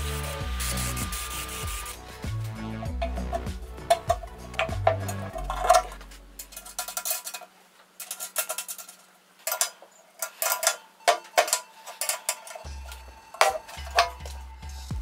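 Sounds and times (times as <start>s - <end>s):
background music: 0.0s - 7.1s, 10.2s - 15.0s
metal bolts and wrench clinking: 3.0s - 14.5s.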